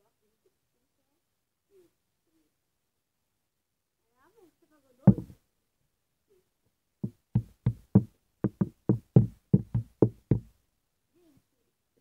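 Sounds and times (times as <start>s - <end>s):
dull knocks: 5.1s - 5.4s, 7.0s - 10.5s.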